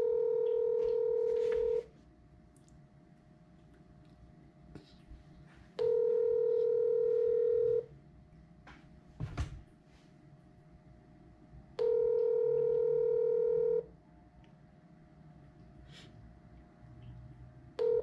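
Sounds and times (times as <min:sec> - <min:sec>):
telephone ringback tone: 0:00.0 - 0:01.8, 0:05.8 - 0:07.9, 0:11.8 - 0:13.9, 0:17.8 - 0:18.0.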